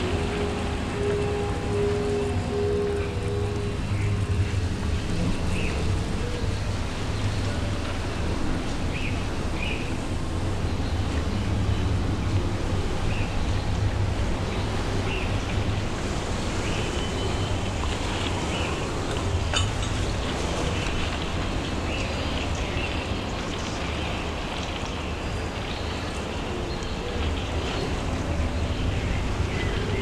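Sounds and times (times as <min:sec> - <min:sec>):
low hum: 0:00.0 - 0:30.0
steady noise wash: 0:00.0 - 0:30.0.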